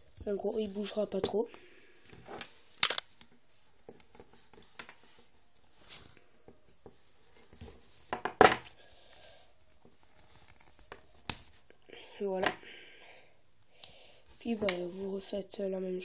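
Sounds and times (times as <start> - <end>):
scissors and tape handled: 2.3 - 5.0, 9.8 - 11.6.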